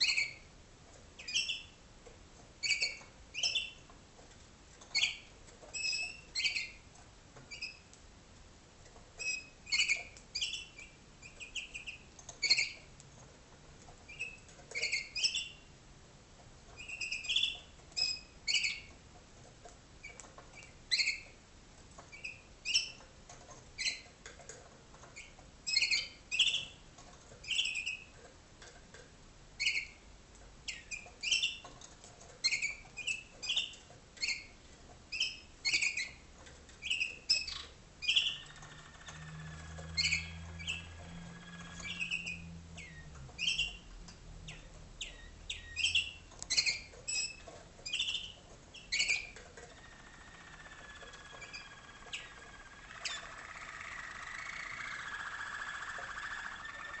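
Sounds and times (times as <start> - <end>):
canaries chirping: 0.0 - 0.5, 1.2 - 1.8, 2.6 - 3.9, 4.9 - 7.9, 9.2 - 12.9, 14.1 - 15.6, 16.8 - 18.9, 20.0 - 21.4, 22.1 - 23.0, 23.8 - 24.1, 25.1 - 28.2, 29.6 - 30.0, 30.7 - 31.7, 32.4 - 57.0
faint low hum: 0.0 - 57.0.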